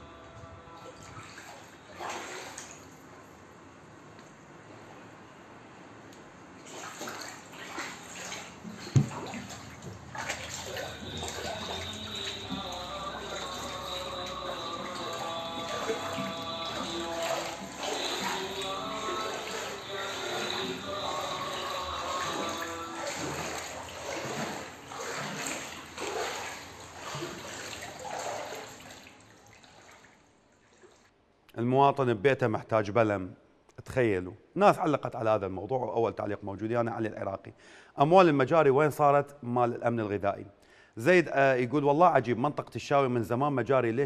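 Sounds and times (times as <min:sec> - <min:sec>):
background music with steady tones: 0:00.0 - 0:02.0, 0:10.6 - 0:26.1
floodwater sloshing across floor: 0:00.2 - 0:03.4, 0:06.2 - 0:31.2.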